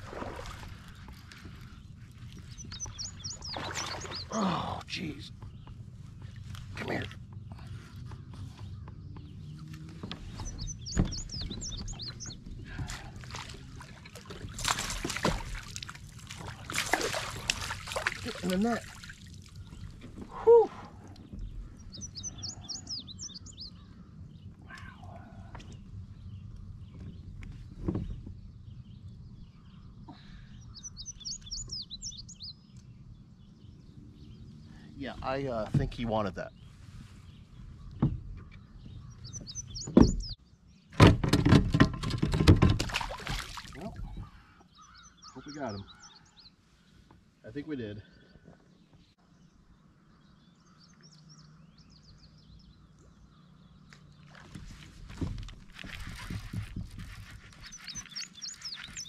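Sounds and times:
songbird chirping: 0.2 - 41.0, 42.2 - 59.0
rough rustling and knocks: 9.7 - 18.2, 41.0 - 44.4, 54.2 - 59.0.

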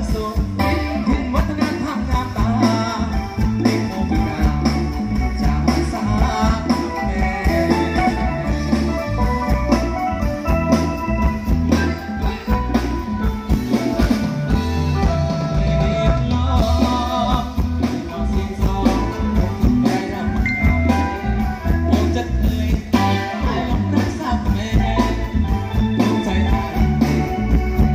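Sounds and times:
man singing: 0.0 - 9.2, 11.7 - 13.6, 14.9 - 27.9
beating bass: 0.0 - 27.9
drum kit: 0.0 - 27.9
electric guitars: 0.0 - 27.9.

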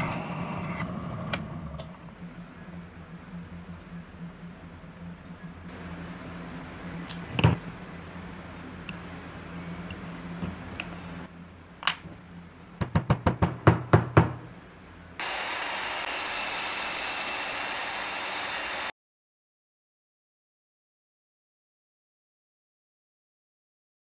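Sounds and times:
hammer knocking on wood: 12.8 - 14.5
bandsaw cutting wood: 15.2 - 18.9.

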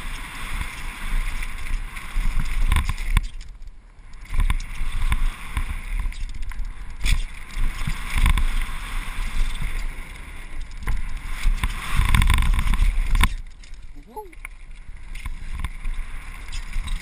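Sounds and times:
bike tyres rumbling on dirt: 0.0 - 17.0
wind buffeting microphone: 4.3 - 14.4.

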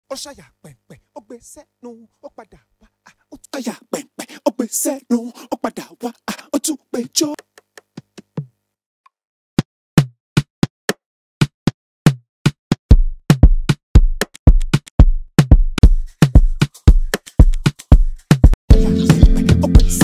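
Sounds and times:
deep kick drum: 12.9 - 20.0.

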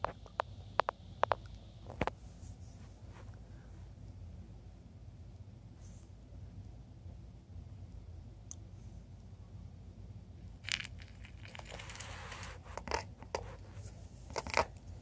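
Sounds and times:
rodent rustling in wood shavings: 11.5 - 14.3.

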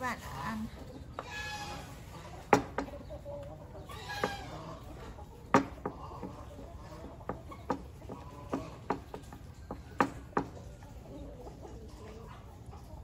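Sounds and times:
chicken clucking: 0.0 - 13.0.

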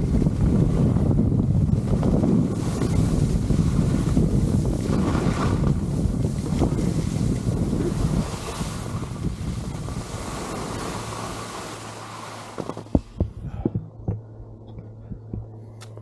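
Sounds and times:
wind rushing over microphone: 0.0 - 16.0
soft low handling thumps: 12.6 - 16.0.

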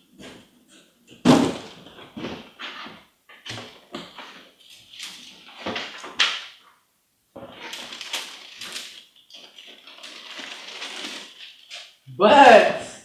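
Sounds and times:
tissue paper rustling: 7.4 - 12.0.

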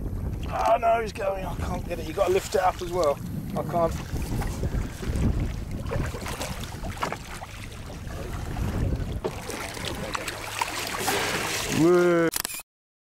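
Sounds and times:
wind buffeting microphone: 0.0 - 11.8
water splashing and sloshing: 0.0 - 12.3.

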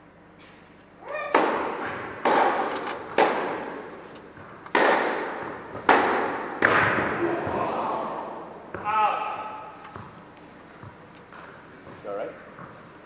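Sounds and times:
tennis ball struck by rackets: 1.3 - 3.7, 4.3 - 7.1.

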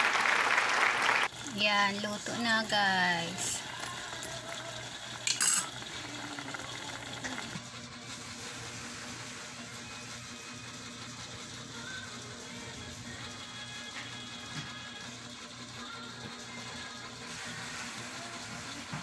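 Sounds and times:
spoon clinking on pot: 5.3 - 5.8.

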